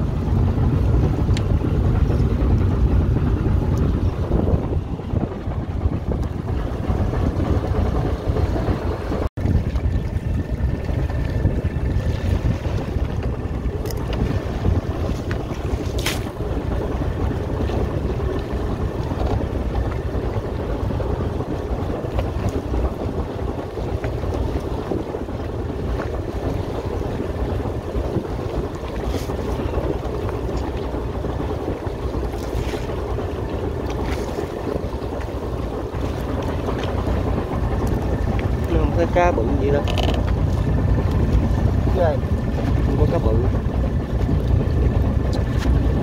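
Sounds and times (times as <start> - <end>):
boat engine drone: 0.0 - 46.0
water rushing along hull: 0.0 - 46.0
wind on microphone: 0.0 - 46.0.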